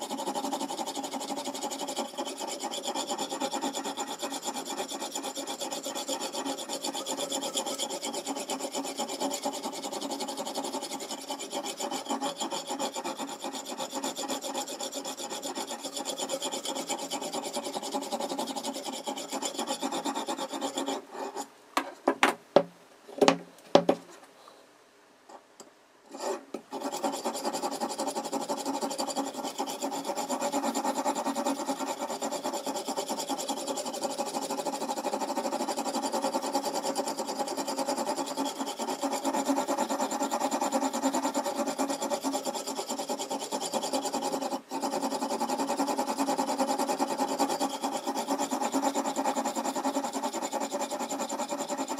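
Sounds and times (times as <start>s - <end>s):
whetstone scraping knife edge: 0.1s - 21.5s
sharp knocks: 21.8s - 24.1s.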